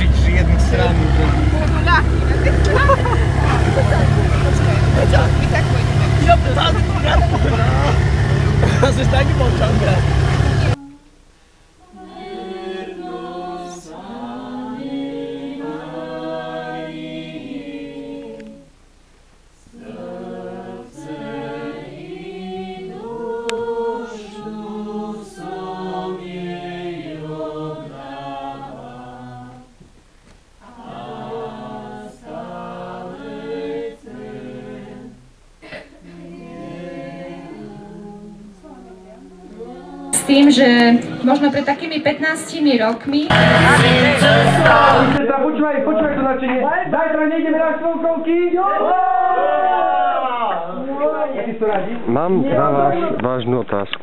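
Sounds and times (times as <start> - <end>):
group singing a hymn: 0.0 - 11.0, 11.8 - 18.8, 19.6 - 29.8, 30.6 - 45.3.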